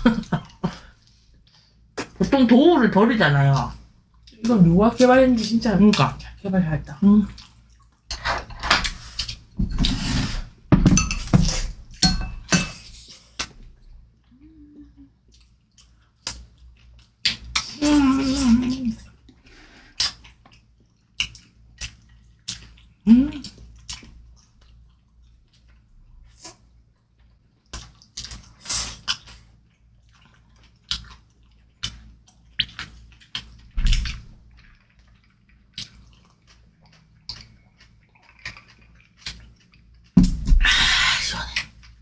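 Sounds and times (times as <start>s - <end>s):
dishes and cutlery clinking: 10.7s - 12.9s
eating sounds: 12.8s - 42.0s
person humming: 14.3s - 15.2s, 17.8s - 19.1s, 23.1s - 23.4s
wet bites and chews: 15.2s - 18.3s, 19.9s - 42.0s.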